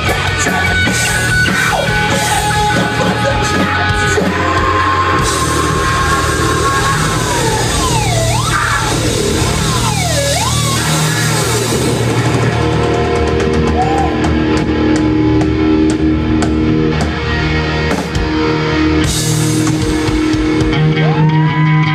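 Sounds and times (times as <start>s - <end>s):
distorted electric guitars: 0.0s - 21.9s.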